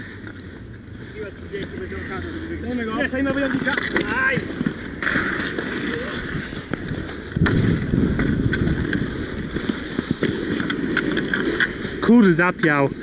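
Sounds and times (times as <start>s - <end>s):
inline skate wheels rolling: 0.0s - 13.0s.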